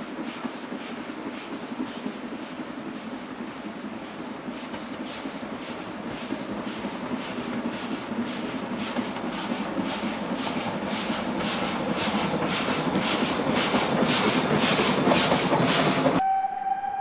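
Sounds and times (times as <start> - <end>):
steam locomotive chuffing: 0.0 - 16.2
steady whistle: 15.9 - 17.0.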